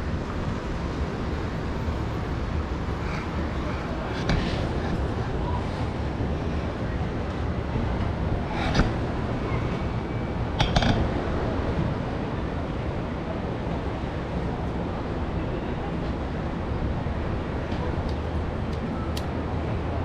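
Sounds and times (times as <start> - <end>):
distant traffic hum: 0.0 - 20.0
wind on microphone: 1.8 - 13.4.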